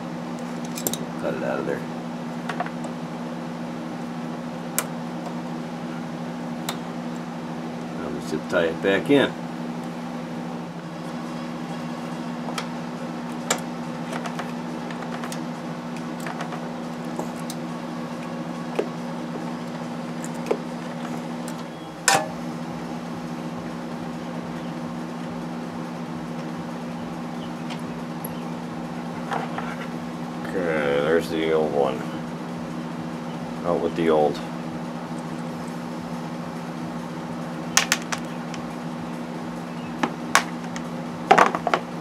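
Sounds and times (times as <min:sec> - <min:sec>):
low machine hum: 0:00.0 - 0:42.0.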